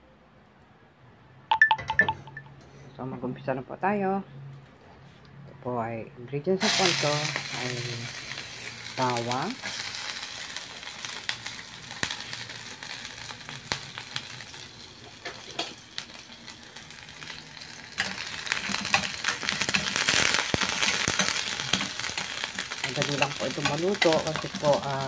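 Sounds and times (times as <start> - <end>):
garlic sizzling in hot oil: 6.6 - 25.0.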